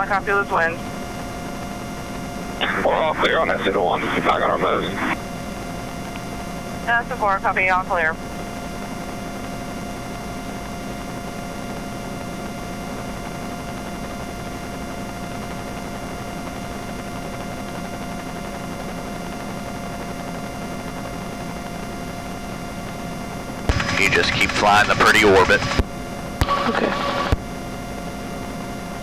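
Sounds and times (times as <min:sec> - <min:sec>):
helicopter cabin rushing noise: 0:00.0 - 0:05.6, 0:23.3 - 0:27.4.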